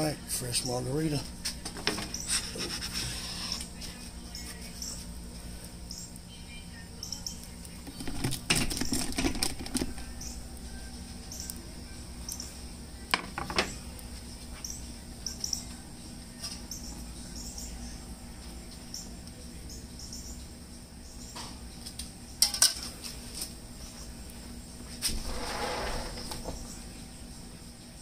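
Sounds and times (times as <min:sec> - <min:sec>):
birds chirping: 0:02.0 - 0:02.5, 0:03.2 - 0:05.2, 0:05.8 - 0:08.2, 0:09.8 - 0:22.4, 0:23.7 - 0:24.8, 0:26.3 - 0:27.7
gas burner rushing: 0:25.0 - 0:26.7.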